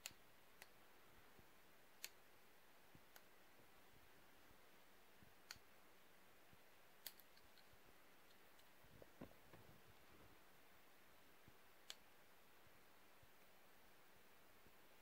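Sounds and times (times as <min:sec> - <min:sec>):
faint clicks: 0:02.0 - 0:02.2, 0:03.0 - 0:03.3.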